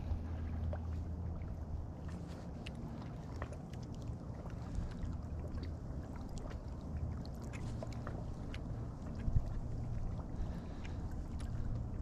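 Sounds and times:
wind buffeting microphone: 4.4s - 12.0s.

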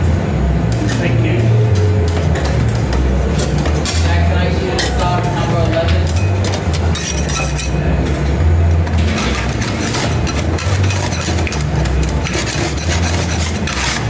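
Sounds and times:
metal spatulas scraping steel: 3.4s - 7.8s, 9.0s - 14.0s.

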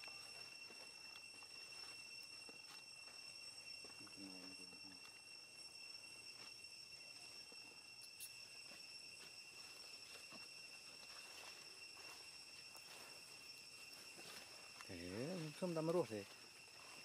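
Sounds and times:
high-pitched insect drone: 0.0s - 17.0s.

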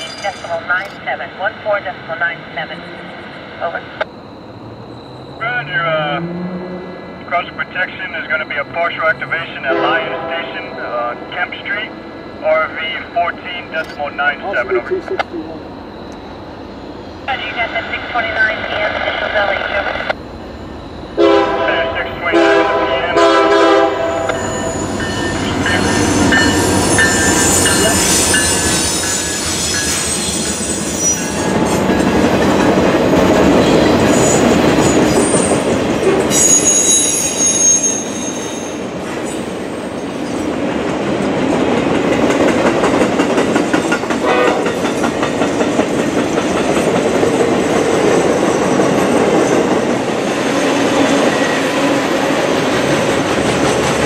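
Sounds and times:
train wheels rumbling on rails: 2.3s - 54.0s
train horn chord: 9.7s - 10.9s, 21.2s - 24.5s, 44.2s - 44.7s
high wheel squeal: 24.2s - 32.1s, 33.6s - 40.4s.

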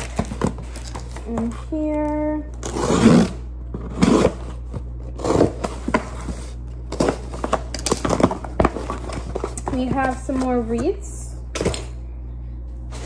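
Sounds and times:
cardboard box scraping and tearing: 2.6s - 4.6s.

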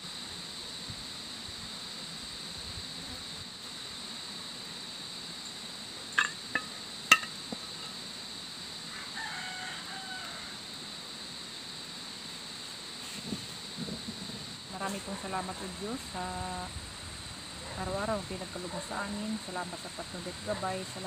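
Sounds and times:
high insect drone: 0.0s - 21.0s
rooster crowing faintly: 8.9s - 10.7s.

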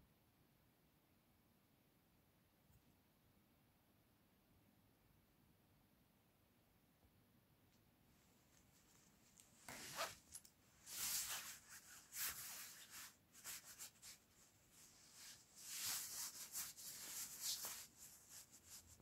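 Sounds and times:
soft rustling: 8.1s - 19.0s.

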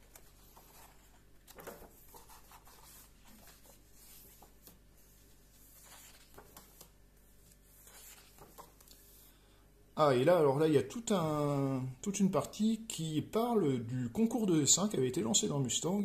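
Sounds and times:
book pages turning: 0.0s - 9.3s.

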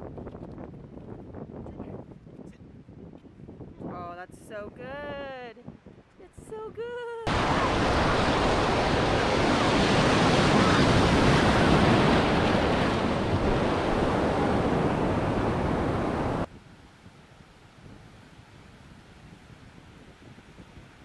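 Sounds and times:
wind buffeting microphone: 0.0s - 21.0s
surf rushing: 7.3s - 16.5s.

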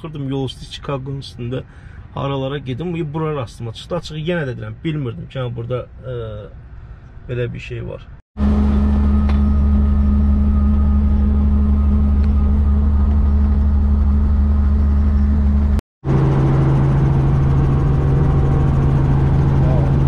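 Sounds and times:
helicopter engine and rotors drone: 8.4s - 20.0s.

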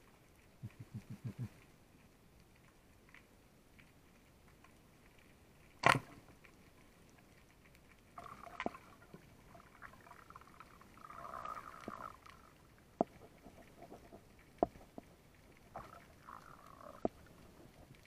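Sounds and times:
faint clicks and scraping: 0.0s - 18.0s
speargun crack underwater: 5.8s - 6.2s.

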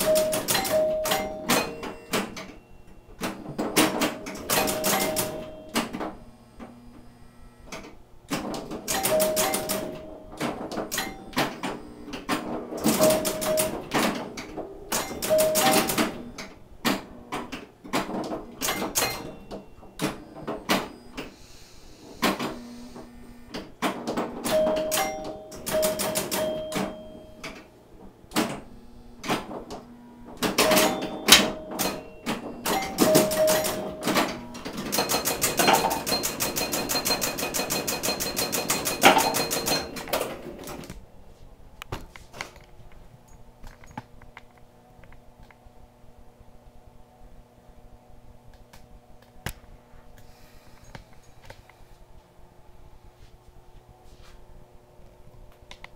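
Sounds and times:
pinball bell chimes: 0.0s - 6.0s, 8.8s - 11.8s, 12.8s - 14.0s, 14.8s - 16.4s, 18.6s - 21.1s, 24.4s - 27.6s, 30.5s - 40.7s
pinball relays and flippers clacking: 0.0s - 6.2s, 7.7s - 21.4s, 23.5s - 41.0s.

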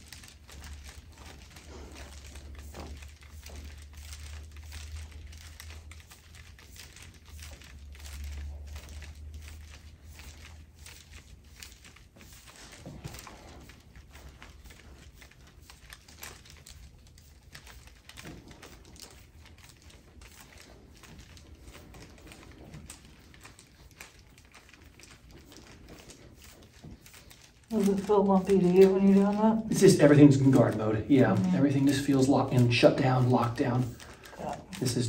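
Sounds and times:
faint rustling of skin and clothing: 0.0s - 35.0s.

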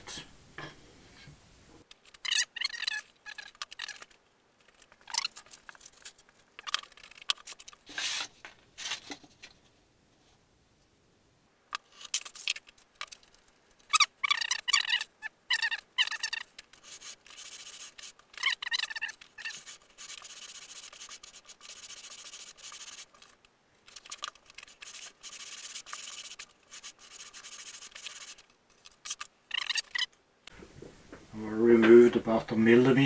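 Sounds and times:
sandpaper block sanding wood: 16.1s - 18.1s, 18.7s - 23.1s, 24.0s - 28.4s
short squeaks: 29.5s - 30.1s.

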